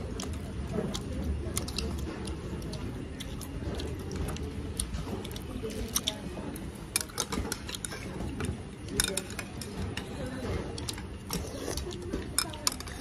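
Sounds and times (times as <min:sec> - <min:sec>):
person chewing: 0:00.0 - 0:06.2, 0:07.0 - 0:09.1, 0:10.8 - 0:13.0
low background hum: 0:00.0 - 0:13.0.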